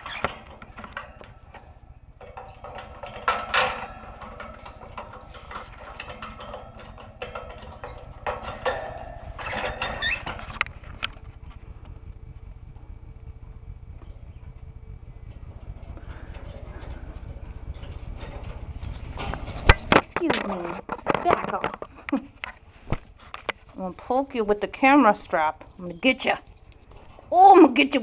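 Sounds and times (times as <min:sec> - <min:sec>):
light clicks and scratches: 0:00.0 - 0:27.3.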